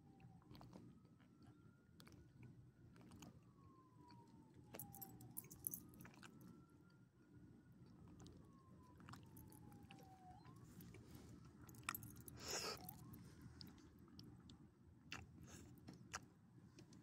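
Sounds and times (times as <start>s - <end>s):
faint siren wailing: 0.0s - 14.9s
dog chewing a treat: 2.9s - 3.4s, 4.8s - 6.4s, 9.0s - 10.2s.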